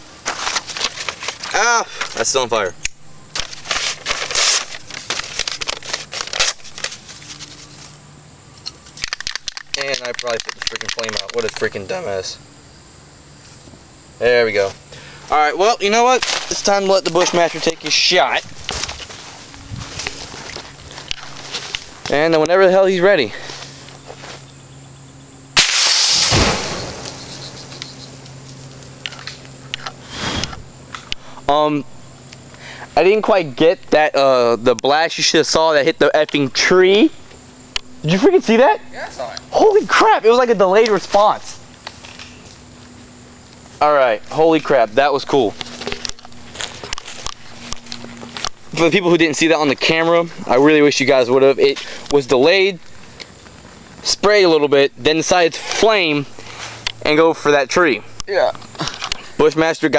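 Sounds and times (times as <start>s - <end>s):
paper crumpling and rustling: 0.2s - 2.2s, 3.4s - 8.0s, 16.1s - 22.2s
rifle shot: 25.6s - 27.3s.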